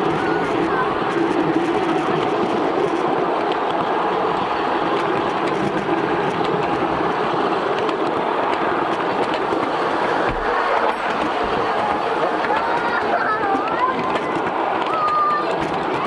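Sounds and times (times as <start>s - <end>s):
miniature train wheels on rails: 0.0s - 16.0s.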